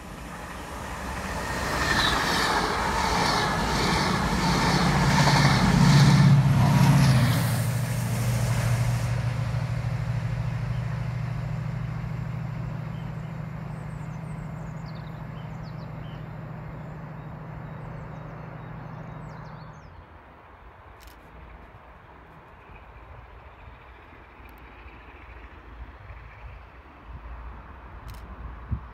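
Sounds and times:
diesel train engine throbbing: 0.0 - 28.9
small birds chirping: 12.7 - 20.0.

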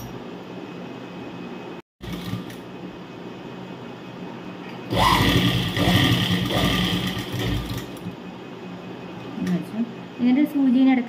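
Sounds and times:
sewing machine running: 2.0 - 2.7, 4.9 - 8.2.

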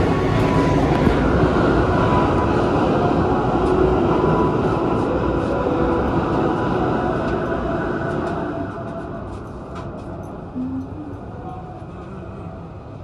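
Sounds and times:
subway train running: 0.0 - 13.0.

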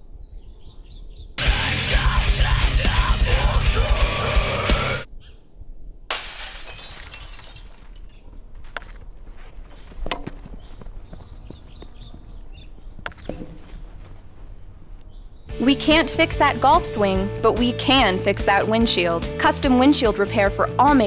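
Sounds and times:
faint birdsong: 0.0 - 1.6, 5.0 - 6.1, 7.7 - 15.8
heavy metal music: 1.4 - 5.1, 15.5 - 21.0
windshield glass shattering: 6.1 - 8.3.

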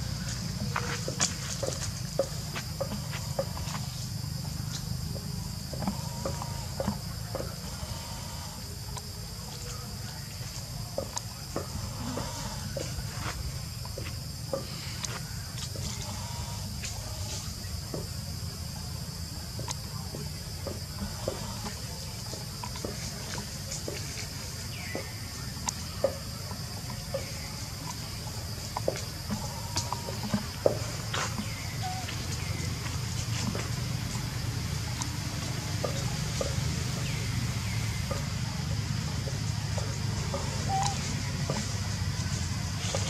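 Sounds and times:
insect chorus drone: 0.0 - 43.0.

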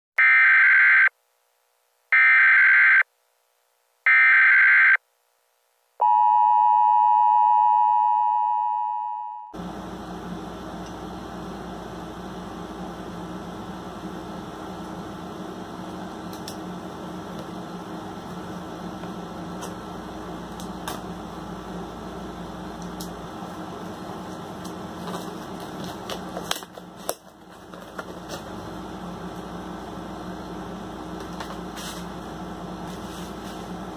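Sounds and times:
room hum: 0.2 - 33.9
long low electronic tone: 6.0 - 9.6.

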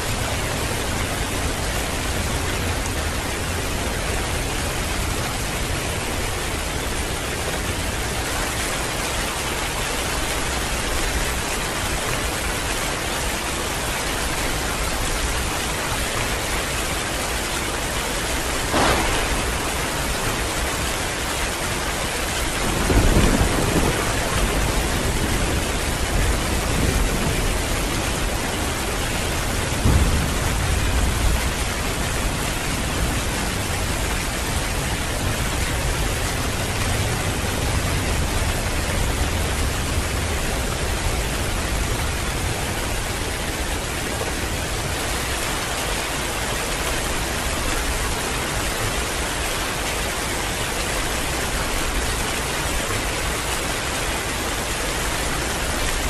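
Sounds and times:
heavy rain falling: 0.0 - 56.0
low thunder rumbles: 18.2 - 45.0
thunder crack: 18.6 - 28.9, 29.7 - 32.0.

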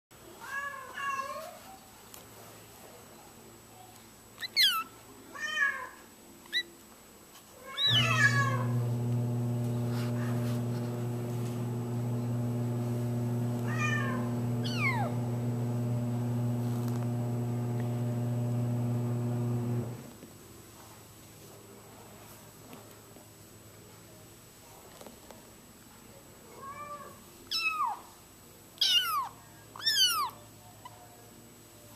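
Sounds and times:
kitten meowing high-pitched: 7.7 - 8.5, 26.6 - 28.0, 28.8 - 30.4.

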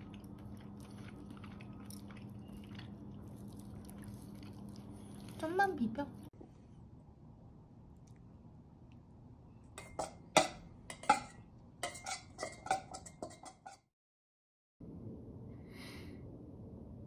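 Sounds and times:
cutlery clinking on ceramic bowl: 9.8 - 13.9.

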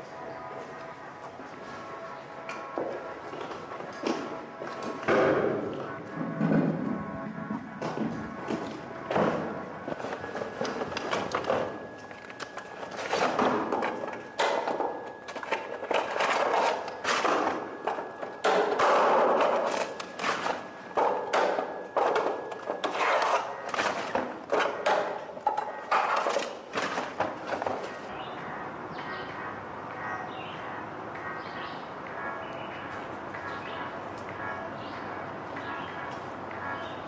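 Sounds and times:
objects clattering while rummaging: 2.7 - 28.1.

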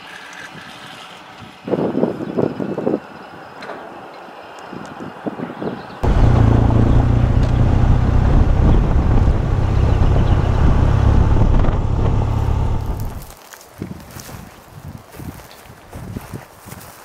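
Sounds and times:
wind noise on microphone: 0.5 - 3.2, 4.7 - 17.0
motorcycle engine running: 6.0 - 13.3.

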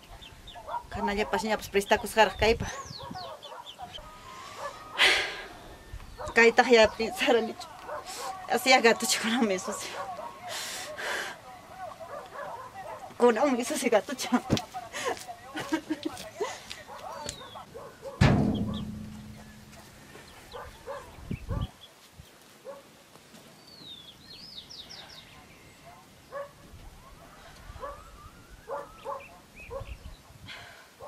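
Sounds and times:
birds chirping: 0.0 - 22.9, 23.5 - 31.0
dull knock: 18.2 - 19.8
sheet-metal door banging: 18.2 - 19.8
dog yipping and whimpering: 28.7 - 30.1.

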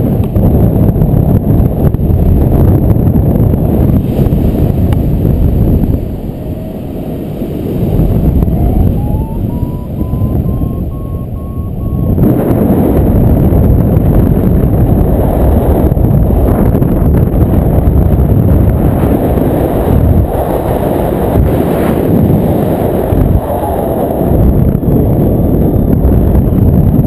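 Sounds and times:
wind rushing over microphone: 0.0 - 27.0
variometer beeping: 8.1 - 12.7.

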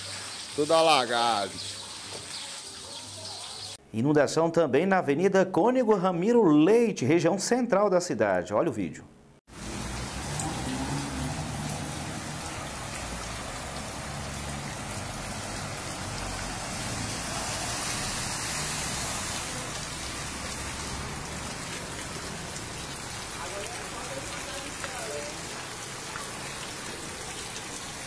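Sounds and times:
heavy rain on water: 0.0 - 3.5, 9.5 - 28.0.

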